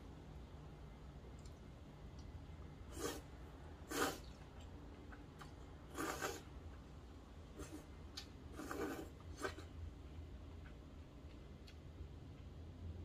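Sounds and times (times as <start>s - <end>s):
noodle slurping: 2.8s - 4.7s, 5.8s - 6.7s, 7.5s - 9.7s.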